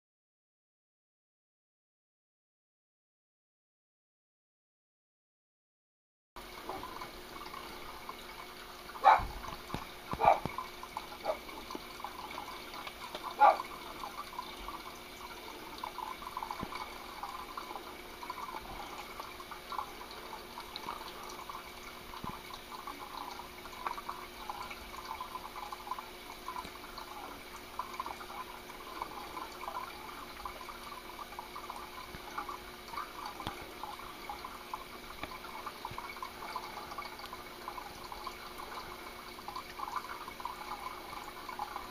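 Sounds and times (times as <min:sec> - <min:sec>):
running water trickling: 0:06.4 - 0:41.9
dog barking: 0:09.0 - 0:09.4, 0:10.2 - 0:10.5, 0:11.2 - 0:11.4, 0:13.4 - 0:13.7.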